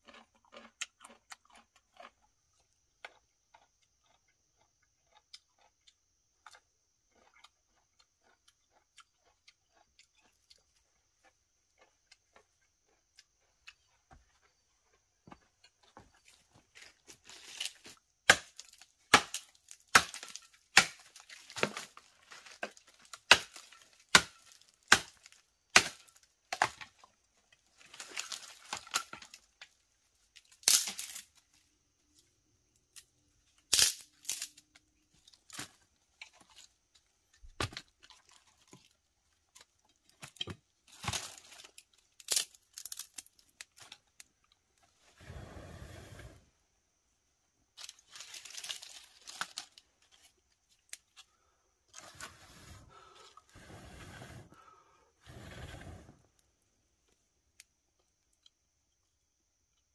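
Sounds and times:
knife chopping wood: 18.2 - 21.9, 22.6 - 26.8.

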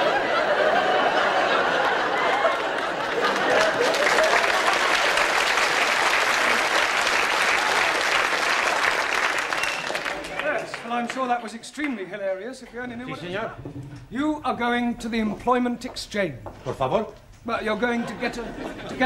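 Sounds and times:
audience laughing: 0.0 - 8.2, 17.6 - 19.0
studio audience applauding: 0.9 - 12.4.

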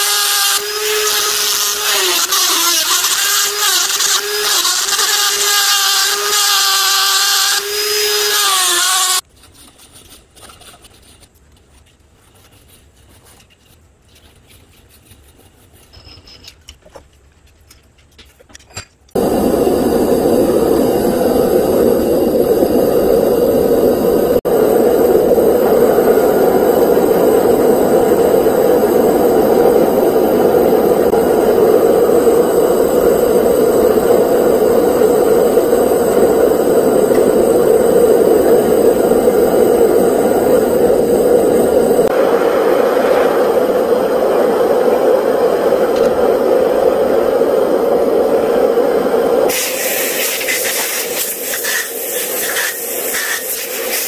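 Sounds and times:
forge burner rushing hiss: 19.1 - 54.0.

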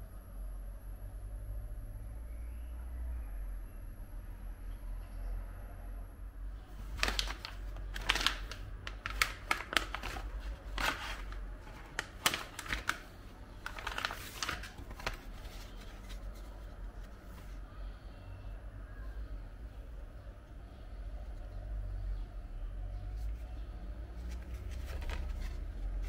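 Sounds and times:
rustling and clicking handling noise: 6.8 - 17.6, 23.1 - 26.0.

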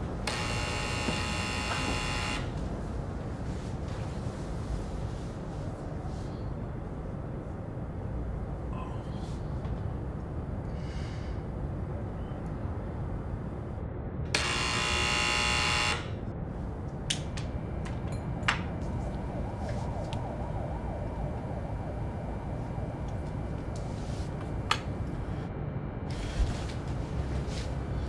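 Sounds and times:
loud electric buzz: 0.2 - 2.6, 14.3 - 16.2
low background rumble: 2.5 - 14.3, 16.2 - 28.0.

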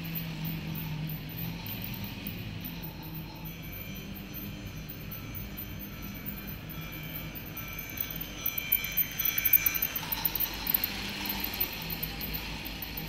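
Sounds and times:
toy locomotive hiss: 0.0 - 13.0
toy train clicking and rattling: 0.0 - 13.0.

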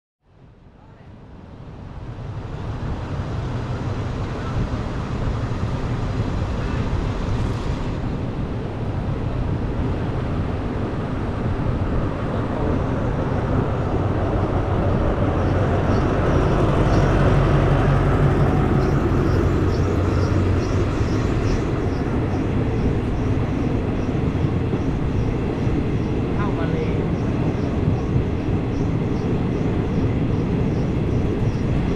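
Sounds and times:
locomotive engine drone: 2.2 - 31.9
train wagons rumbling: 9.5 - 31.9.

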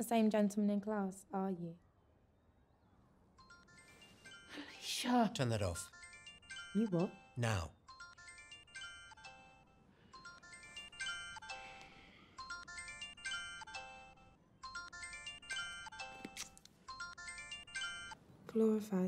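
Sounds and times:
chiming phone melody: 3.4 - 18.2.

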